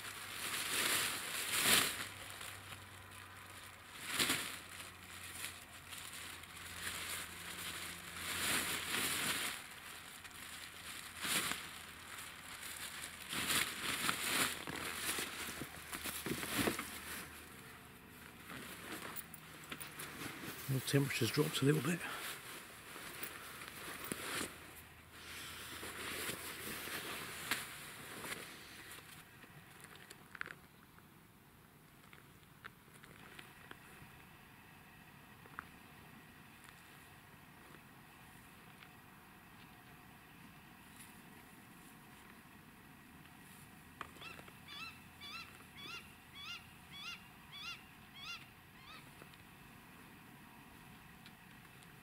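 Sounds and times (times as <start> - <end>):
jacket fabric rustling: 3.8 - 29.1
animal calling: 44.2 - 49.2.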